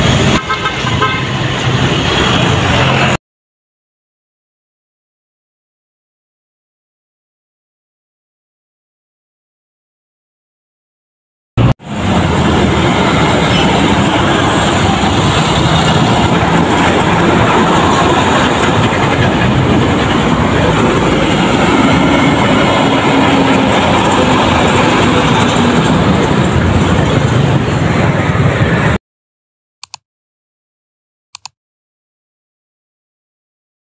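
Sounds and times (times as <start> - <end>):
trucks passing close: 0.0 - 3.2, 11.6 - 29.0.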